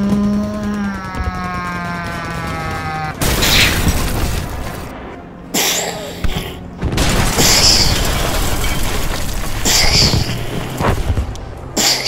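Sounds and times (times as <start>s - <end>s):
battle rumble: 0.0s - 8.2s
booming explosions: 0.9s - 5.4s, 6.7s - 11.8s.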